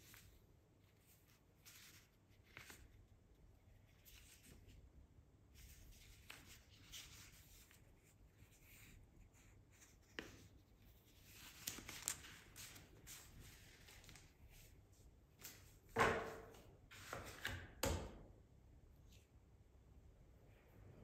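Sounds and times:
paper rustling: 5.6 - 14.8.

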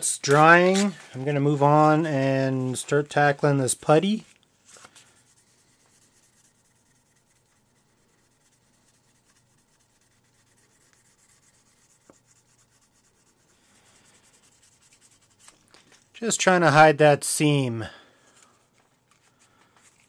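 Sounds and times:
sanding sponge rubbing plastic: 5.2 - 15.5.

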